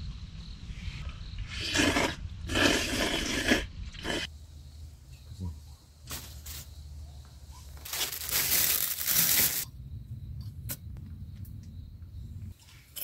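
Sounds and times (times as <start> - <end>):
crinkling rustling: 7.8 - 9.6.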